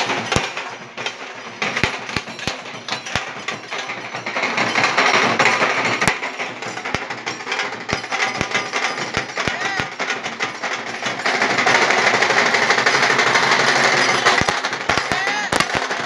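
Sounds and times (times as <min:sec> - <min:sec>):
loud rapid drumming: 0:00.0 - 0:16.0.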